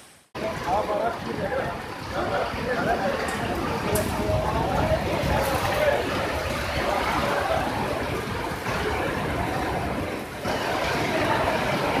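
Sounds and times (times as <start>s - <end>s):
rain beating against glass: 0.0s - 12.0s
storm wind: 0.4s - 12.0s.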